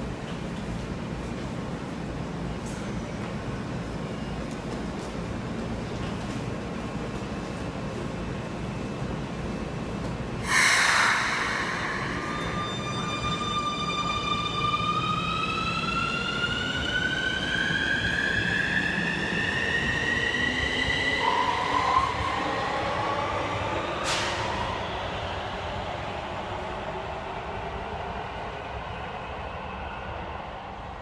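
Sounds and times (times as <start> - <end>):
burst of hiss: 10.4 - 12.8
lower whine: 10.4 - 16.8.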